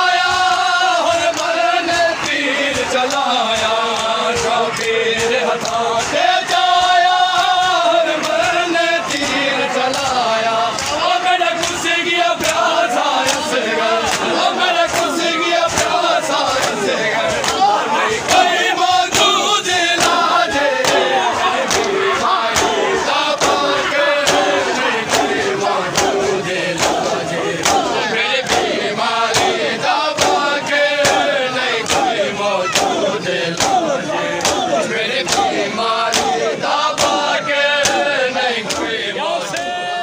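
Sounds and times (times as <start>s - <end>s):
crowd of men chanting: 0.0s - 40.0s
hands slapping bare chests: 1.2s - 38.1s.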